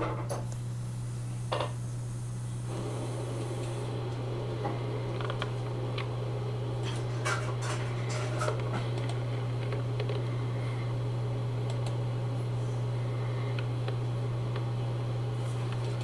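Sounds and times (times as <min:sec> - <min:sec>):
small clicks: 0:11.6 - 0:12.0.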